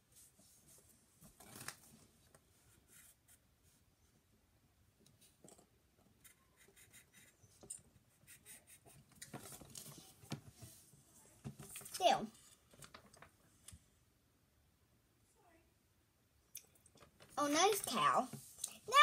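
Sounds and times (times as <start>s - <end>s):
pencil scratching on paper: 6.2s - 7.5s, 8.1s - 9.0s.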